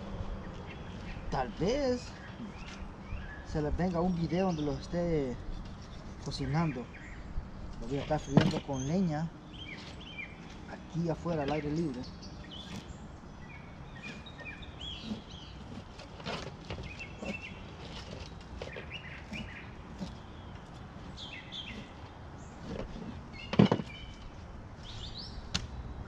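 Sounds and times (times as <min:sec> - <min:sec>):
songbirds chirping: 0:00.0 - 0:26.0.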